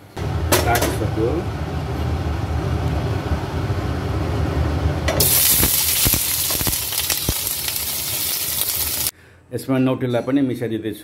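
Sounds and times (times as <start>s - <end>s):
steady low hum: 0.0s - 5.2s
meat sizzling in hot oil: 5.2s - 9.1s.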